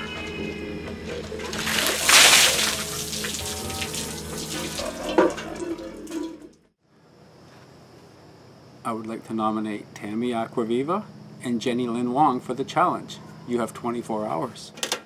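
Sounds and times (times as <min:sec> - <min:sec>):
music: 0:00.0 - 0:06.7
water dripping and splattering: 0:01.4 - 0:06.5
water rushing and splashing: 0:01.5 - 0:06.2.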